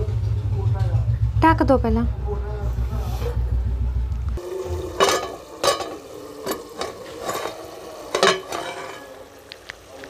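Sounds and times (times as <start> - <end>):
metal lid and ladle clinking: 4.7 - 9.4.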